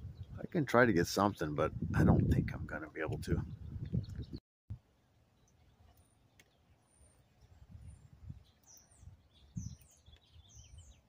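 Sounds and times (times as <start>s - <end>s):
faint high bird chirps: 5.4s - 11.0s.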